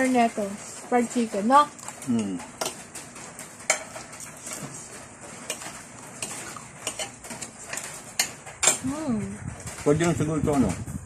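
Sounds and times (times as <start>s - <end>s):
spoons clinking on ceramic plates: 3.6s - 4.1s, 5.4s - 8.9s.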